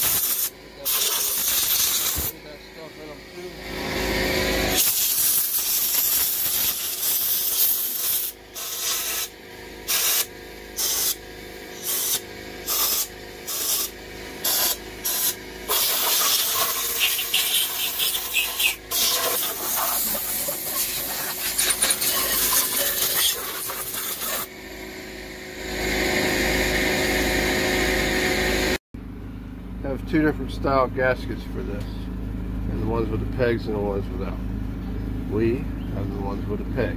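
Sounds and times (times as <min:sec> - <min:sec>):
air blow gun hissing: 0:00.0 - 0:02.4, 0:04.6 - 0:11.2, 0:11.8 - 0:24.5.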